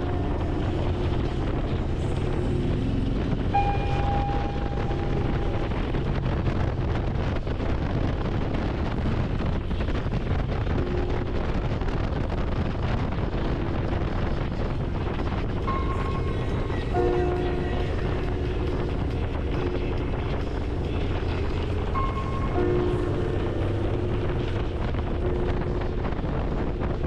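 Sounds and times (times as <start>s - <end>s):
motorcycle engine running: 0.0s - 8.0s
wind rush on microphone: 0.0s - 27.0s.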